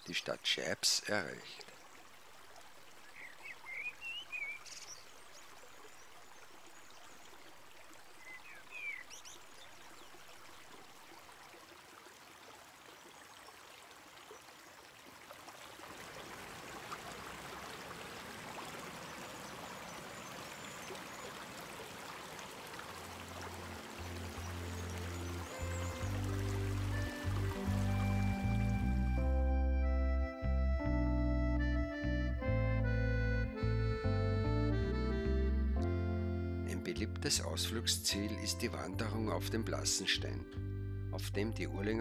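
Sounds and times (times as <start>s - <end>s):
river water rushing: 1.3s - 29.1s.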